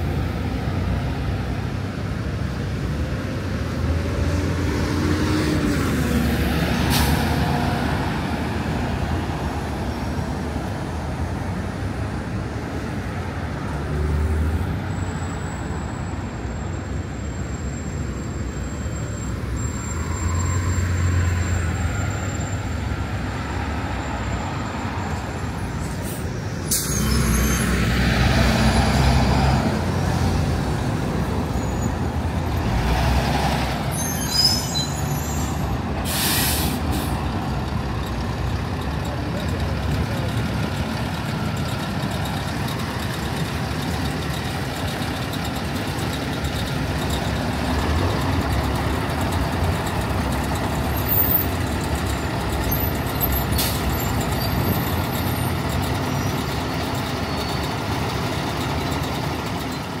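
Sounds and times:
passing vehicle engines: 0:00.0 - 1:00.0
short sharp hiss: 0:36.0 - 0:37.2.

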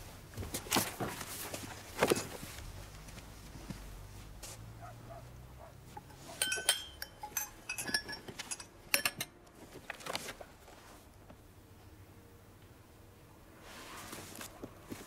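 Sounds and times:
paper rustle: 0:00.4 - 0:03.3, 0:09.6 - 0:11.0
wine glass clinking: 0:06.0 - 0:09.3.

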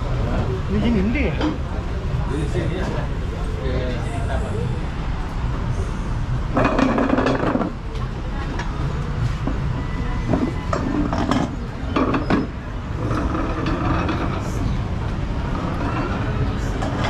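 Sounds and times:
vehicle engine rumbling: 0:00.0 - 0:17.0
voices: 0:00.0 - 0:17.0
rattling clatter: 0:10.3 - 0:14.7.

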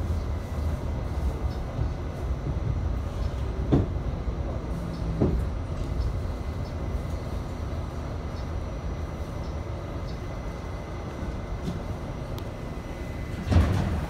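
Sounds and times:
subway car wheels rumbling: 0:00.0 - 0:14.0
clunk: 0:13.3 - 0:14.0.

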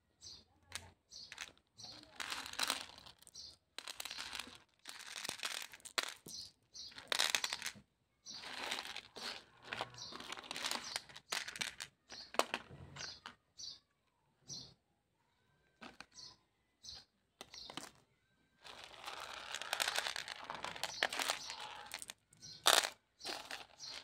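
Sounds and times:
crinkly candy wrapper rustling: 0:01.3 - 0:06.3, 0:06.9 - 0:07.8, 0:08.4 - 0:12.6, 0:18.6 - 0:24.0.

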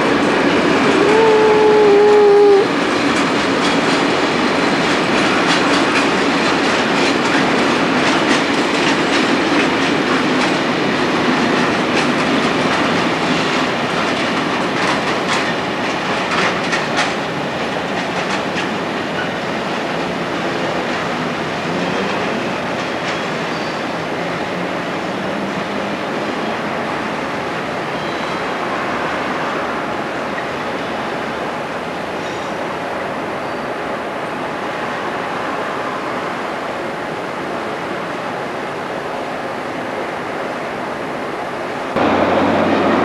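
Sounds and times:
freight train rumbling by: 0:00.0 - 0:43.0
wheels clicking over rail joints: 0:02.9 - 0:25.9.

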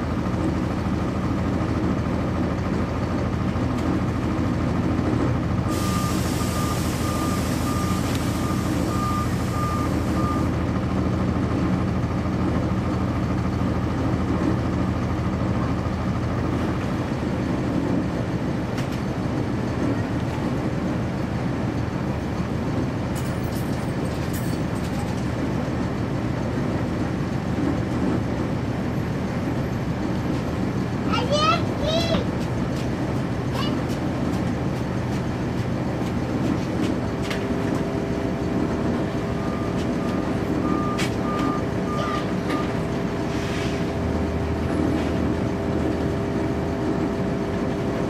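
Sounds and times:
diesel bus engine running: 0:00.0 - 0:48.0
repeated beeping alarm: 0:05.7 - 0:10.6, 0:39.4 - 0:42.8.

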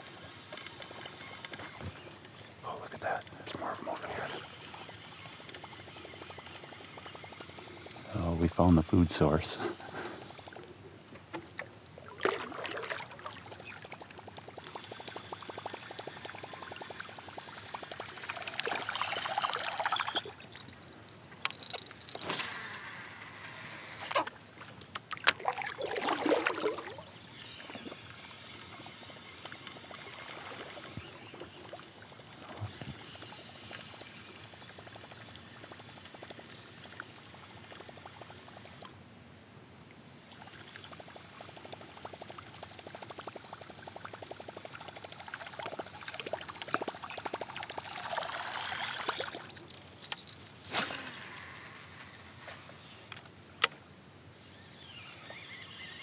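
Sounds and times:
water splashing and trickling: 0:11.3 - 0:20.8, 0:24.1 - 0:38.9, 0:40.2 - 0:52.1.

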